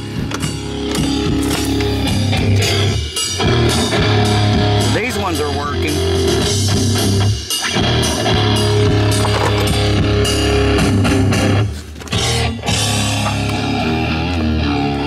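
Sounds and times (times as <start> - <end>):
rock music through car speakers: 0.0 - 15.0.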